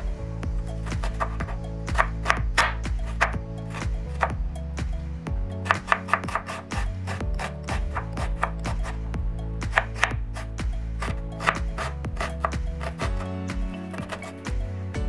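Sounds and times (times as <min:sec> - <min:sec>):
background music: 0:00.0 - 0:15.0
knife chopping on wooden board: 0:00.8 - 0:04.4, 0:05.6 - 0:09.0, 0:09.6 - 0:14.5.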